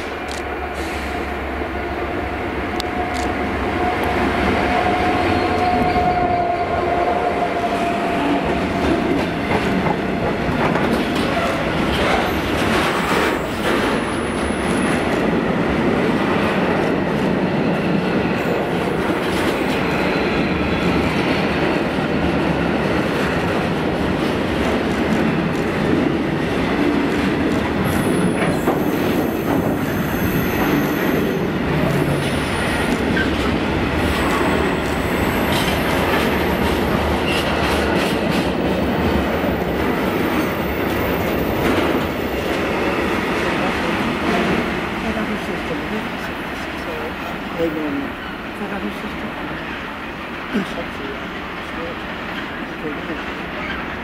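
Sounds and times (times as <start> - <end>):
train wheels on rails: 0.0 - 54.0
faint high squeals: 27.9 - 31.4.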